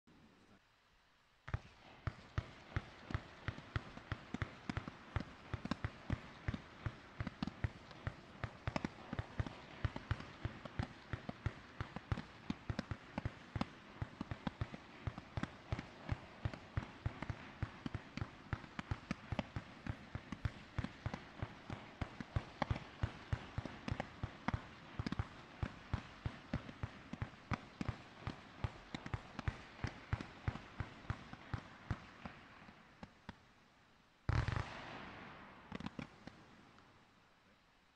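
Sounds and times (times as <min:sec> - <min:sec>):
fireworks launch pops: 0:34.3 - 0:36.9.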